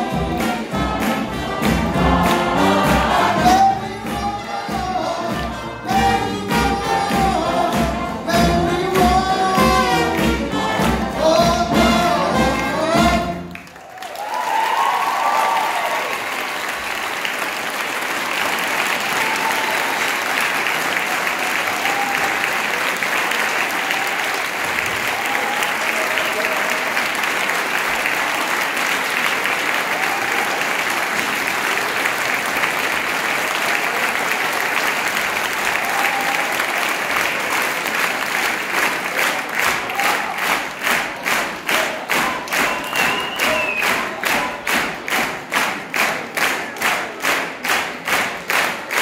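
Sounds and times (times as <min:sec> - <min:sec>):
audience applauding: 0:00.0 - 0:05.8, 0:12.8 - 0:49.0
music: 0:00.0 - 0:13.7
cheers and whoops: 0:13.8 - 0:16.5, 0:19.0 - 0:20.2, 0:21.1 - 0:22.8, 0:23.6 - 0:27.0, 0:29.7 - 0:30.8, 0:35.6 - 0:36.9, 0:39.8 - 0:40.5.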